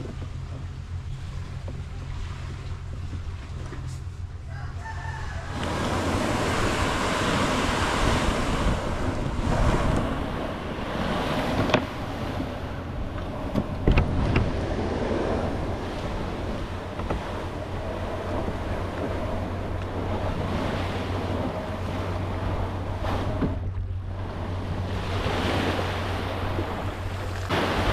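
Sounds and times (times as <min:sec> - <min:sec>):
rooster crowing: 0:04.4 - 0:06.2
kayak scraping across sand: 0:05.6 - 0:27.9.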